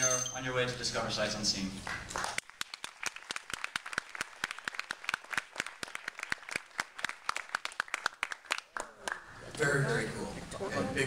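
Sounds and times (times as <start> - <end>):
audience applauding: 1.8 - 9.4.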